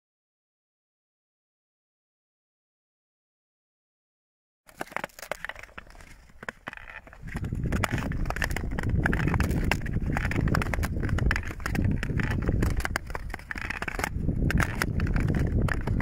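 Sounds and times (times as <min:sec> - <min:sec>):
ice cracking: 0:04.7 - 0:16.0
ice skate blades scraping: 0:04.7 - 0:16.0.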